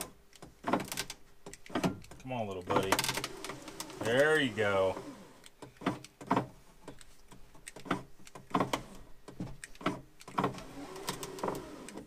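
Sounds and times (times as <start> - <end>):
sharp clicks and knocks: 0.0 - 12.0
power window motor running: 10.4 - 12.0.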